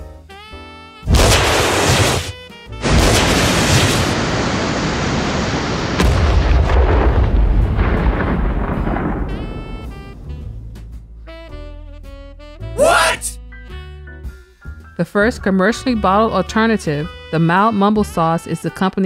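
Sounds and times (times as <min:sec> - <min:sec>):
rocket launch roar: 0:01.1 - 0:10.2.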